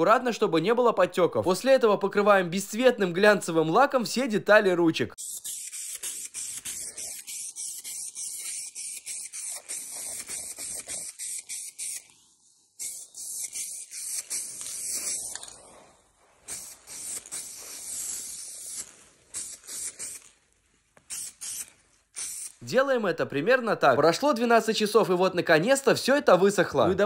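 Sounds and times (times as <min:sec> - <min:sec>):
aerosol can spraying: 0:05.2 - 0:12.2, 0:12.8 - 0:20.4, 0:21.0 - 0:22.6.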